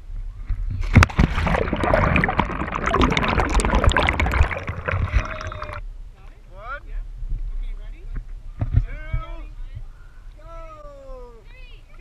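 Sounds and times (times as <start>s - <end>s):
body splashing into water: 0.8s - 5.8s
underwater bubbles gurgling: 0.9s - 5.8s.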